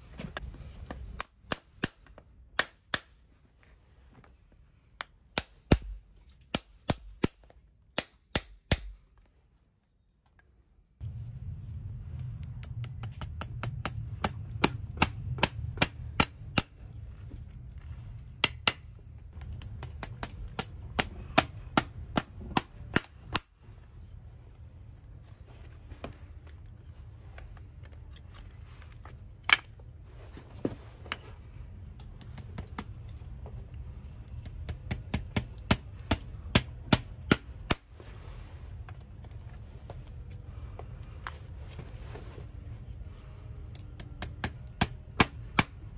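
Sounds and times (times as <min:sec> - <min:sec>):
hammer tapping on metal: 0:12.4 - 0:16.7, 0:19.4 - 0:23.5.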